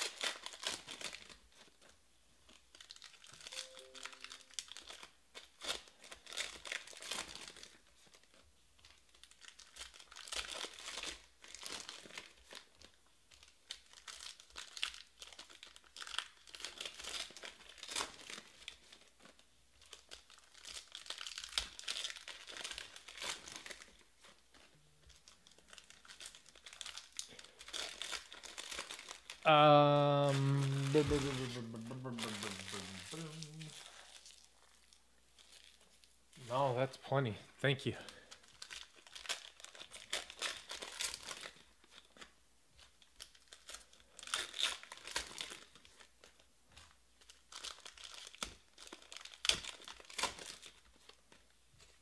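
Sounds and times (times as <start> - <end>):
foil wrappers crinkling and tearing: 0.0 - 36.1, 38.0 - 52.0.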